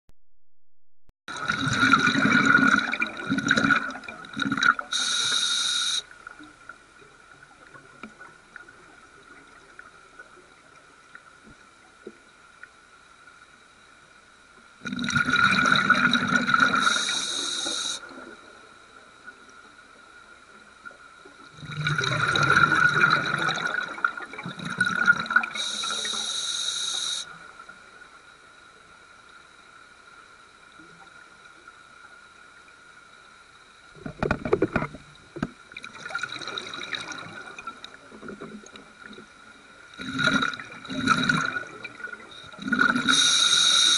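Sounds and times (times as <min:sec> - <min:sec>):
gurgling exhaled bubbles: 0:01.3 - 0:05.0, 0:14.8 - 0:17.2, 0:21.5 - 0:25.8, 0:40.0 - 0:43.4
faint high whine: 0:04.8 - 0:07.9, 0:16.4 - 0:21.4, 0:25.4 - 0:35.5, 0:41.3 - 0:43.9
regulator hiss: 0:04.9 - 0:06.1, 0:16.6 - 0:18.1, 0:25.5 - 0:27.4, 0:42.4 - 0:43.9.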